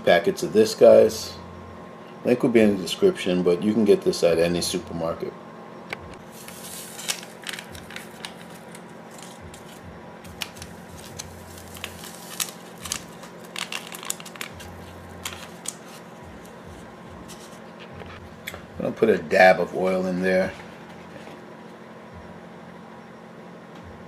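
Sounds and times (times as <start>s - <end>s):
steady low hum: 0.0s - 24.0s
foil packets crinkling and tearing: 6.2s - 17.6s.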